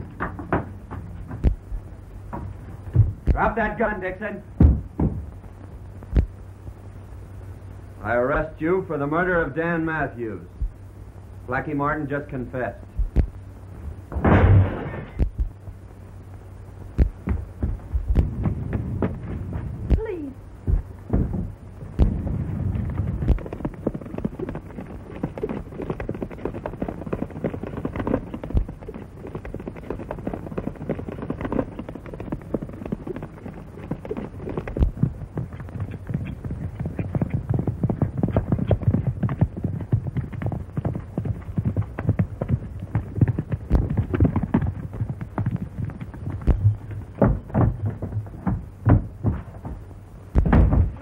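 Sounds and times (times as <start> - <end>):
horse hoofbeats galloping: 0.0 - 5.5, 14.9 - 15.8, 16.9 - 51.0
heavy thumps: 0.0 - 6.8, 10.5 - 10.9, 12.9 - 51.0.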